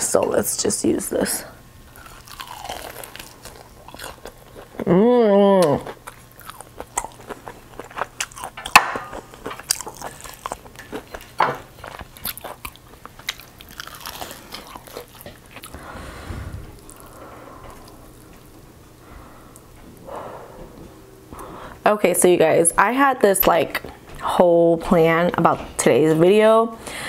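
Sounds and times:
chewing crispy fried chicken: 0:01.9 - 0:05.0, 0:05.6 - 0:15.8.

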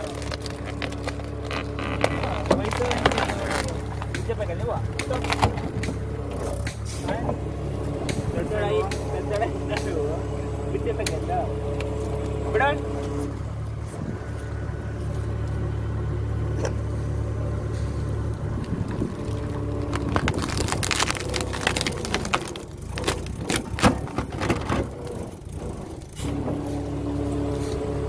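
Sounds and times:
wood cracking and crunching: 0:00.0 - 0:06.9, 0:18.1 - 0:26.2
tractor engine running: 0:00.0 - 0:28.0.

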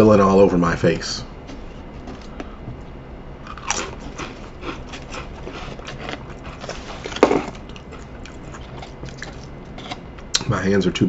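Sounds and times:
potato crisps crunching: 0:03.4 - 0:10.0.

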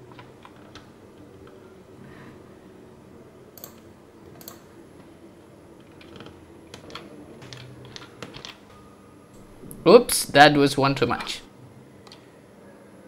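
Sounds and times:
keyboard keys clicking: 0:03.6 - 0:04.6, 0:05.8 - 0:08.7.

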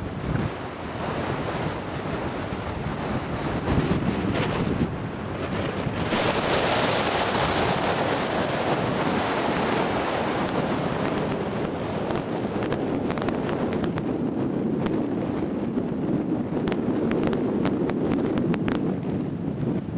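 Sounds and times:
strong wind on microphone: 0:00.0 - 0:19.9
short crackles: 0:16.6 - 0:19.0.

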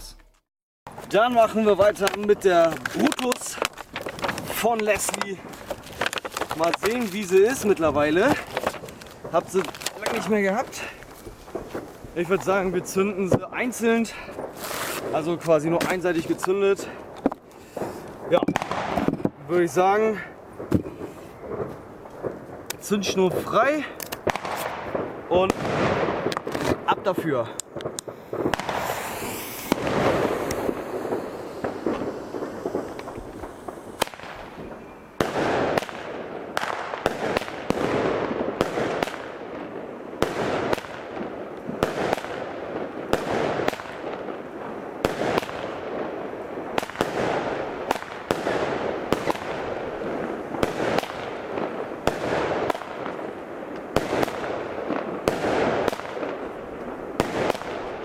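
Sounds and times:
firework bangs with rumbling tail: 0:00.9 - 0:19.6, 0:24.2 - 0:26.9, 0:27.7 - 0:56.4
fuse hissing: 0:28.8 - 0:34.0.

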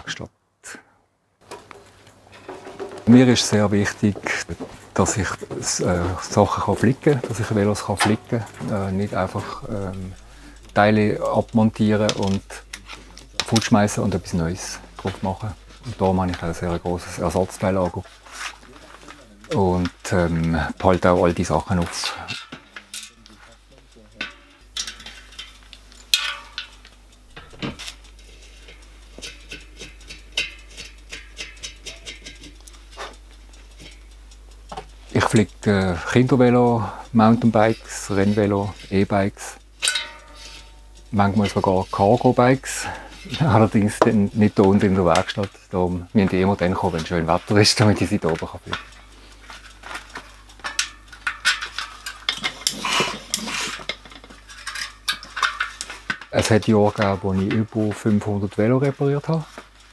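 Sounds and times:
bicycle rim and tyre clicking: 0:01.4 - 0:59.9
light metallic ticks: 0:04.2 - 0:59.9
metal clink: 0:24.2 - 0:28.0, 0:39.8 - 0:40.9, 0:50.6 - 0:56.3
rubber scraping against rim: 0:52.4 - 0:53.8.

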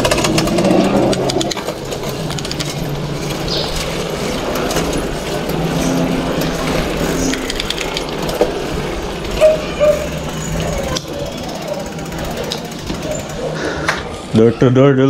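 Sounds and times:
bike clicks and rattles: 0:00.0 - 0:14.3
bicycle tyres rolling on concrete: 0:00.0 - 0:14.5.

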